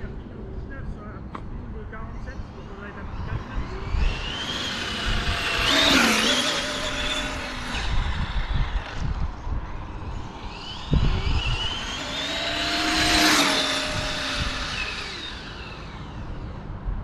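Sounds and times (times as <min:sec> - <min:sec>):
electric motor whine: 0:02.5 - 0:17.0.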